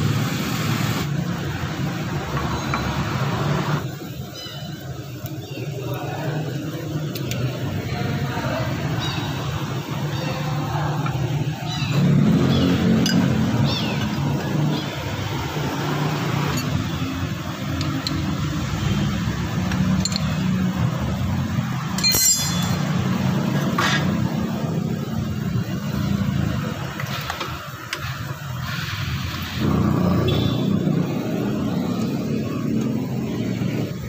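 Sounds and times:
low mechanical drone: 0:07.0 - 0:27.0
small metallic clicks: 0:19.7 - 0:20.5
ringing clink of metal: 0:22.0 - 0:22.9.

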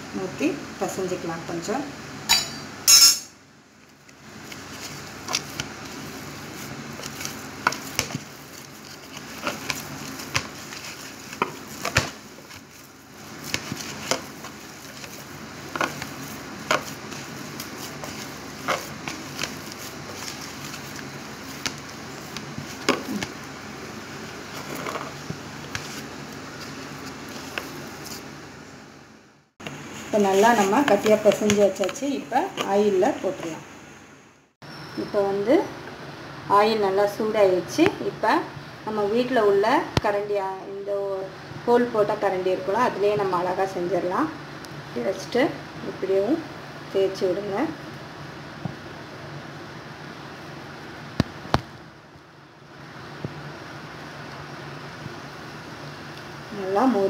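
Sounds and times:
dough squishing: 0:03.9 - 0:28.4.

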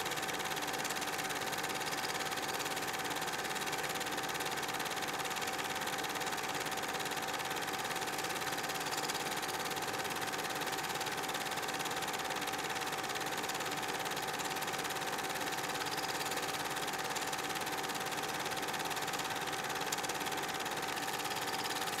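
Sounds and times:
small motor whirring: 0:18.6 - 0:22.0.

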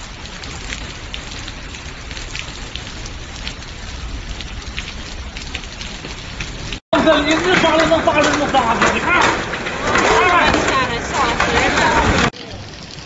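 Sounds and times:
hailstones clattering on paving: 0:04.4 - 0:13.0.

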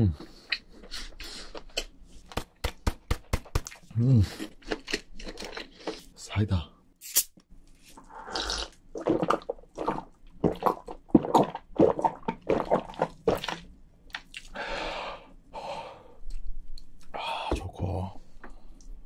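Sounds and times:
person gulping a drink: 0:07.9 - 0:14.6.

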